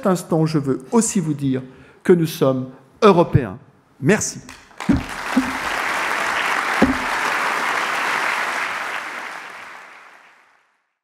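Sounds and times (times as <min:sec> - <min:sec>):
audience applauding: 0:04.7 - 0:10.8.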